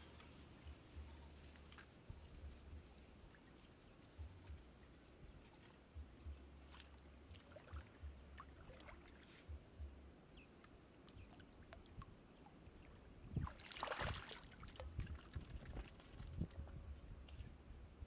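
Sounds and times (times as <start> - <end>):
water splashes: 5.0 - 9.5, 11.0 - 16.6
water sloshing and dripping: 5.2 - 9.6, 11.0 - 16.6.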